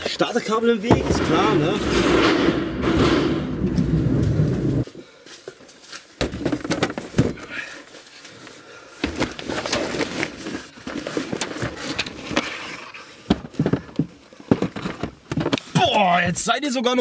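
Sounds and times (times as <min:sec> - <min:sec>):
boxes knocking and bumping: 0:00.8 - 0:04.8, 0:06.2 - 0:07.6, 0:09.0 - 0:16.4
cardboard rustling: 0:08.0 - 0:16.0.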